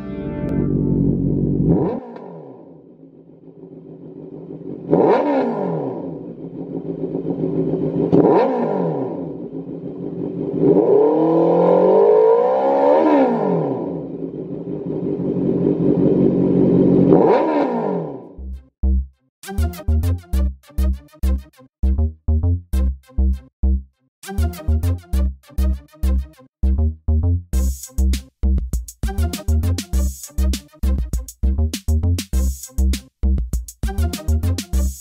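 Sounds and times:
motorcycle engine revving: 0.5s - 18.3s.

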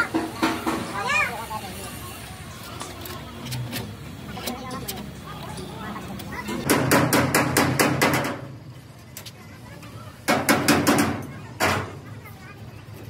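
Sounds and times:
rapid hammer strikes: 6.6s - 8.6s, 10.3s - 12.0s.

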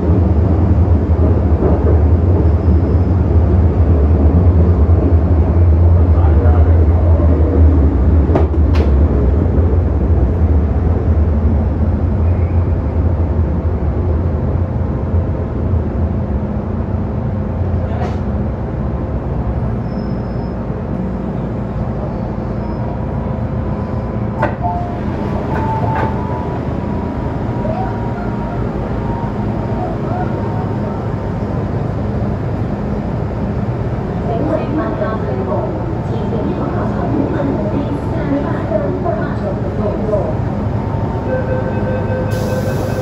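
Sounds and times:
train cabin rumble: 0.0s - 19.8s, 20.6s - 43.0s
train door clunk: 8.3s - 9.1s, 17.9s - 18.3s, 24.3s - 26.6s.

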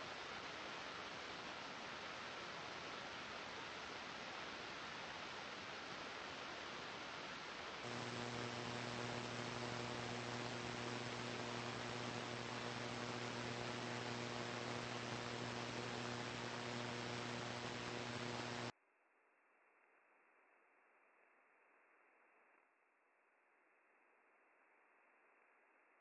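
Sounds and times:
low hum with overtones: 7.8s - 18.7s
radio static hiss: 7.8s - 18.7s.

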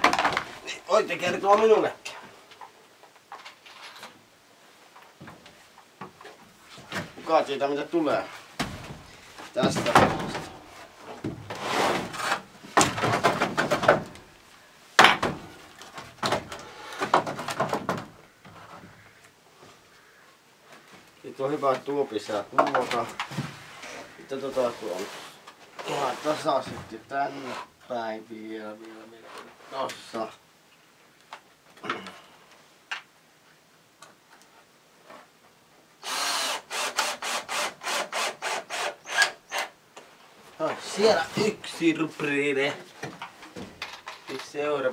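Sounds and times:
wooden pallets dragged and scraped: 8.2s - 13.6s, 22.7s - 27.8s
power drill driving screw: 36.0s - 39.7s.

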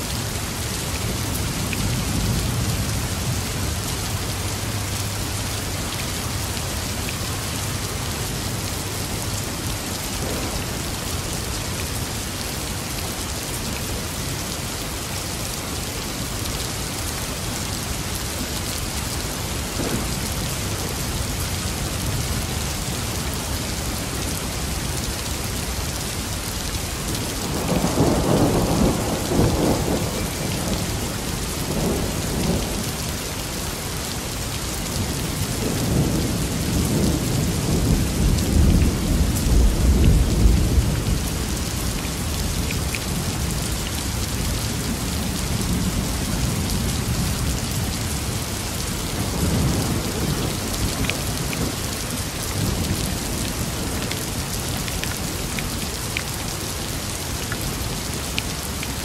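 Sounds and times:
rain hissing: 25.6s - 57.4s.

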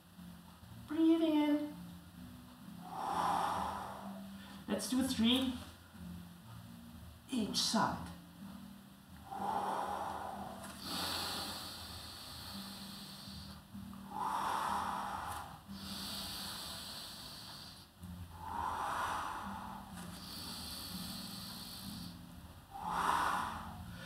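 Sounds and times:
woman breathing deeply: 2.7s - 4.7s, 9.1s - 24.0s.

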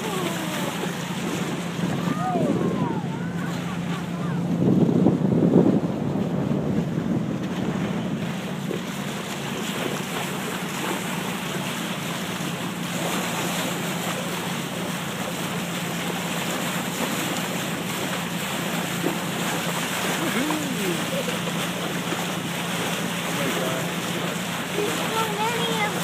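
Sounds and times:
wind buffeting microphone: 0.0s - 11.6s
boat engine humming: 0.0s - 26.0s
bow wave splashing: 0.0s - 26.0s.

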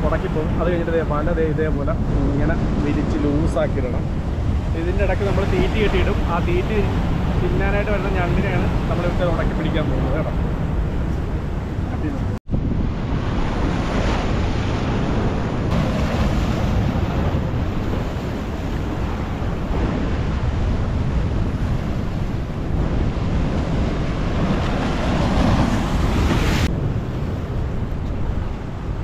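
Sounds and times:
wind buffeting microphone: 0.0s - 29.0s
surf breaking on rocks: 12.9s - 27.4s.

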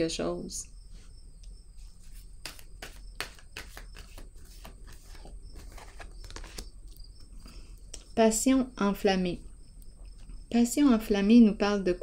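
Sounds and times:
cards clicking and scraping: 2.1s - 7.0s.

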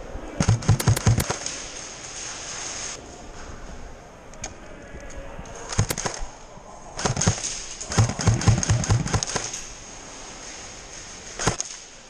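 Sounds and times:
airsoft gunfire: 0.4s - 1.5s, 5.7s - 6.3s, 7.0s - 9.6s, 11.4s - 11.7s.

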